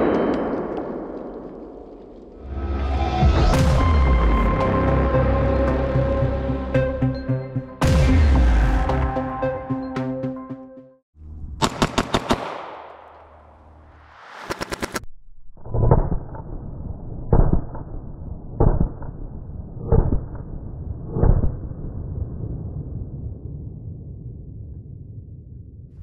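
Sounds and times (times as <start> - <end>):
pistol shots: 11.6 - 13.4
rapid stuttering clicks: 14.3 - 15.1.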